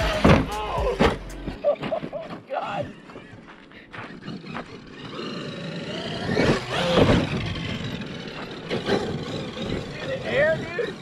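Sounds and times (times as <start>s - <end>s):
tyres on loose dirt: 0.0s - 11.0s
electric motor whining: 2.6s - 11.0s.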